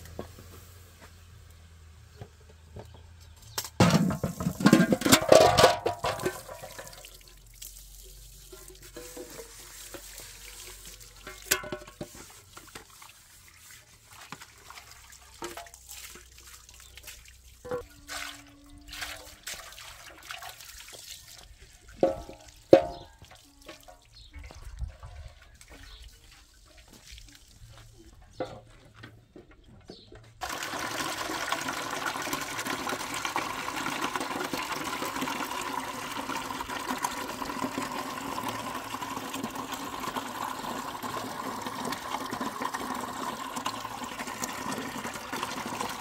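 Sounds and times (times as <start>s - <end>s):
metal pots clinking: 3.7s - 7.2s, 8.4s - 12.8s, 15.3s - 16.3s, 21.9s - 24.2s
water pouring and splashing: 3.8s - 28.2s, 30.4s - 46.0s.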